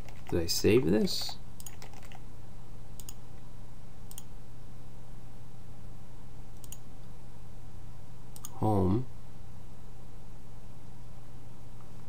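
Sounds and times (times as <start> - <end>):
computer mouse clicks: 1.1 - 2.2, 3.0 - 3.2, 4.1 - 4.3, 6.6 - 6.9, 8.4 - 8.6.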